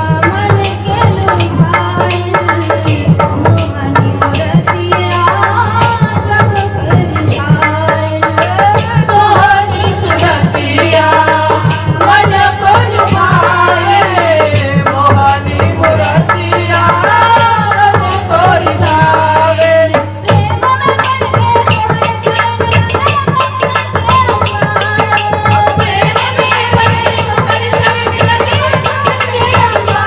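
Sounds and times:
hand drum beat: 0:00.0 - 0:30.0
harmonium: 0:00.0 - 0:30.0
women singing devotional song: 0:00.0 - 0:30.0.

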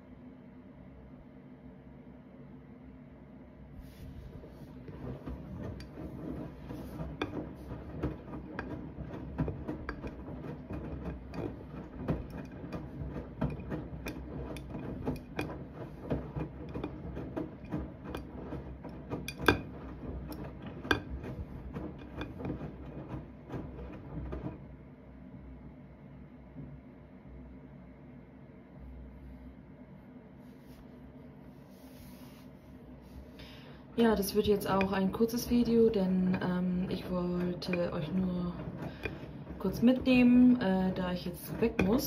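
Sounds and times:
wet laundry sloshing: 0:03.8 - 0:24.9, 0:31.6 - 0:42.0
washing machine drum rumbling: 0:03.8 - 0:27.0, 0:31.8 - 0:42.0
clicks and knocks: 0:04.8 - 0:24.7, 0:34.2 - 0:42.0.

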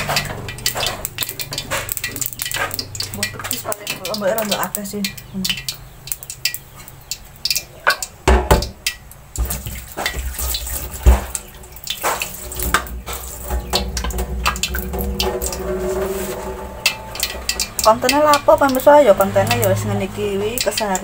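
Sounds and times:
kitchen utensils clattering: 0:00.0 - 0:04.8, 0:09.4 - 0:20.7
tap water running into sink: 0:00.0 - 0:21.0.

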